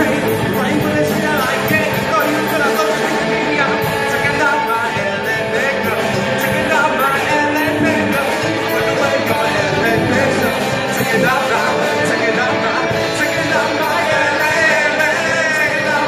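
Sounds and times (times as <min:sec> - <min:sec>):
lead singer singing: 0:00.0 - 0:16.0
live rock band playing: 0:00.0 - 0:16.0.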